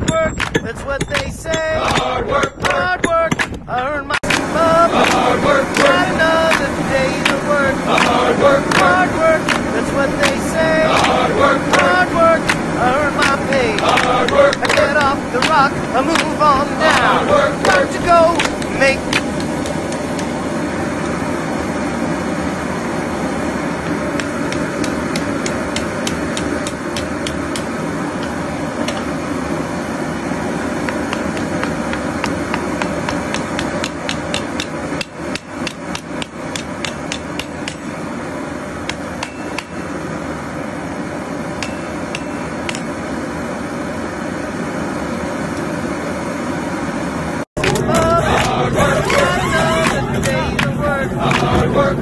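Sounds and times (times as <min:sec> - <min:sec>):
steady rushing noise: 0:00.0 - 0:52.0
hammer striking steel on anvil: 0:31.1 - 0:38.0, 0:38.9 - 0:39.8, 0:41.6 - 0:42.9.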